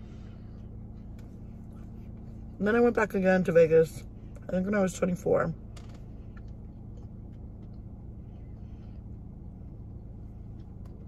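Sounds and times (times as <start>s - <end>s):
car cabin hum: 0.0s - 11.0s
chewing clicks: 6.3s - 7.9s.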